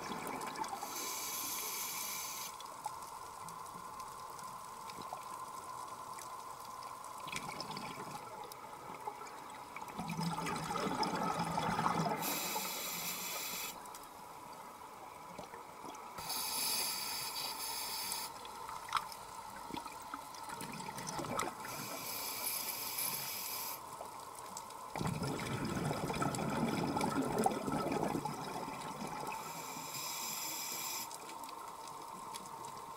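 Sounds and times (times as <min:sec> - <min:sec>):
regulator breathing hiss: 0:00.8 - 0:02.6, 0:12.2 - 0:13.8, 0:16.2 - 0:18.4, 0:21.6 - 0:24.0, 0:29.3 - 0:31.2
exhalation bubbling underwater: 0:25.0 - 0:29.3.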